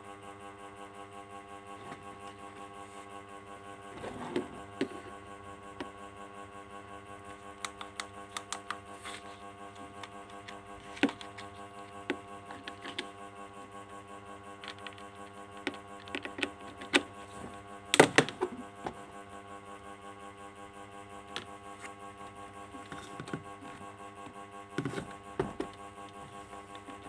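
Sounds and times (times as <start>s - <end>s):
steady hum: 0.0s - 27.0s
plastic clicks and knocks: 24.8s - 25.8s.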